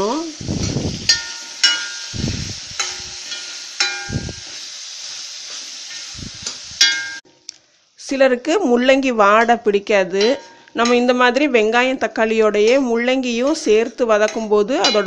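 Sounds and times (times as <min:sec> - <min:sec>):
vegetables sizzling in hot oil: 0:00.0 - 0:07.2, 0:10.4 - 0:15.0
spoon clinking on pan: 0:01.1 - 0:02.1, 0:02.8 - 0:04.2, 0:06.8 - 0:07.2, 0:14.3 - 0:15.0
metal spoon scraping pan: 0:02.8 - 0:04.6.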